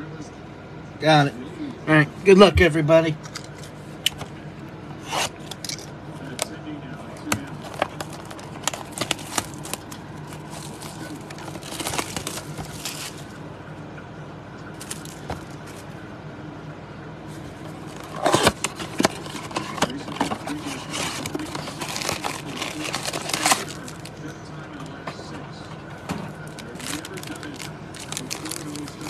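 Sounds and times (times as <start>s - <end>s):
faint low hum: 0.0s - 29.0s
shrink wrap crinkling and tearing: 7.2s - 13.4s, 14.8s - 15.8s, 17.4s - 24.3s, 26.4s - 29.0s.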